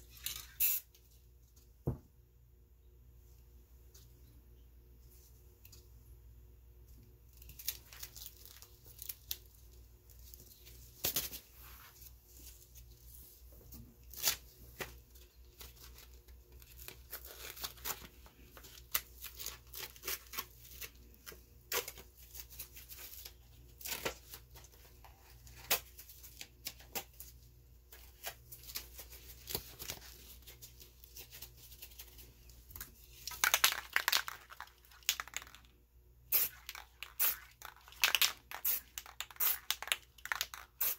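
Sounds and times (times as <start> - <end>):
paper crackling and crinkling: 7.4 - 13.2, 14.0 - 35.6.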